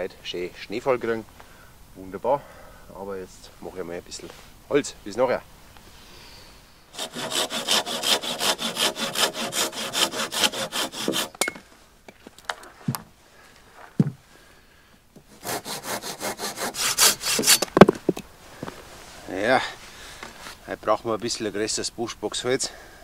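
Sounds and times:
hand saw cutting branch: 7.0 - 11.5, 15.3 - 17.7.

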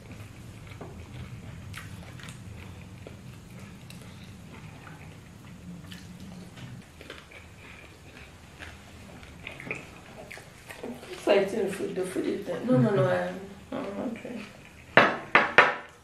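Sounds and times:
man chewing wet smacks: 0.0 - 11.3
low steady hum: 0.0 - 16.0.

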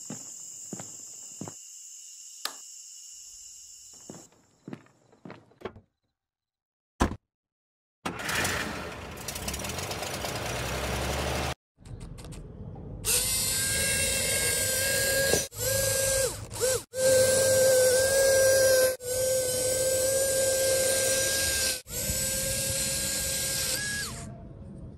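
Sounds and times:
model train motor whining: 13.1 - 24.3.

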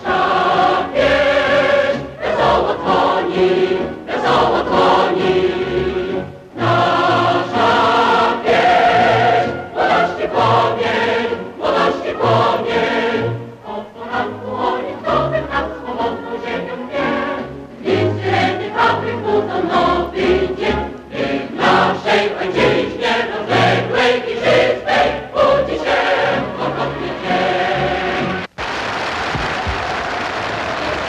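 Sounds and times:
choir singing with instruments: 0.0 - 28.5
crowd noise: 28.4 - 31.0.

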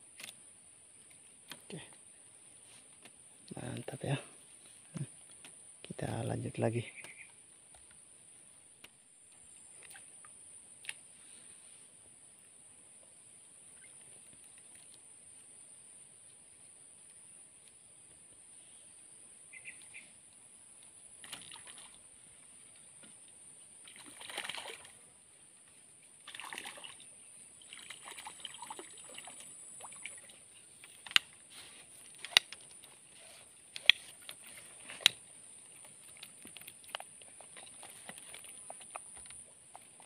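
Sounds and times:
water splashing and sloshing: 21.2 - 40.0.

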